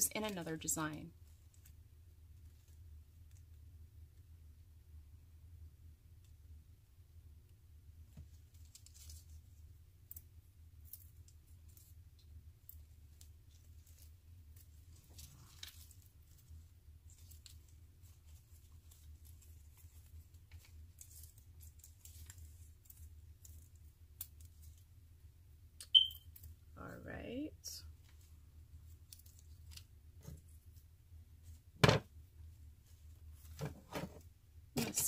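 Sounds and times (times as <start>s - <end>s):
artificial flower stems rustling: 8.0s - 26.8s, 27.6s - 35.0s.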